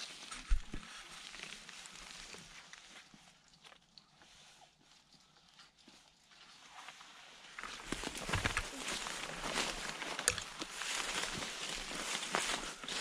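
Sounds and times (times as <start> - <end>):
footsteps on trail: 7.6 - 13.0.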